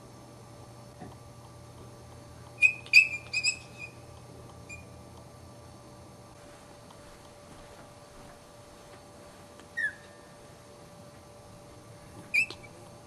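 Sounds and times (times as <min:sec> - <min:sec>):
puppy squeaking: 0:02.6 - 0:04.0, 0:09.8 - 0:10.1, 0:12.3 - 0:12.8.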